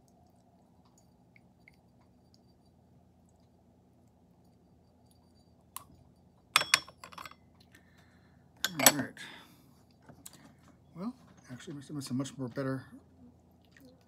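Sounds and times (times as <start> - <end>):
teaware clinking: 5.0 - 7.5, 8.6 - 9.1.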